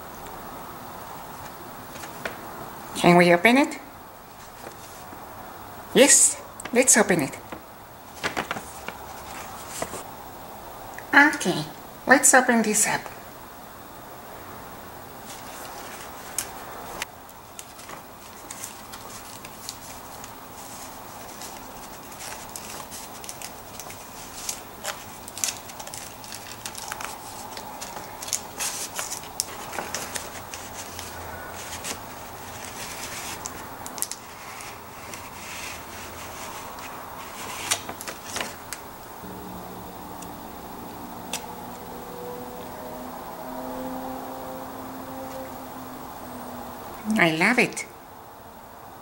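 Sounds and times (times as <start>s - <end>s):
paper envelope rustling: 1.3s - 2.6s, 4.3s - 5.3s, 6.6s - 10.1s, 15.2s - 16.7s, 17.3s - 38.8s.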